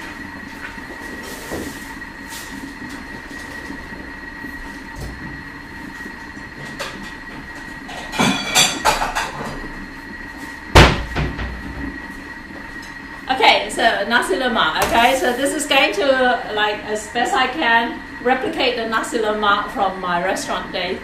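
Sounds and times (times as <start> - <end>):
kitchen appliance humming: 0.0 - 21.0
dishes clattering: 7.9 - 9.4
sharp loud knock: 10.8 - 11.5.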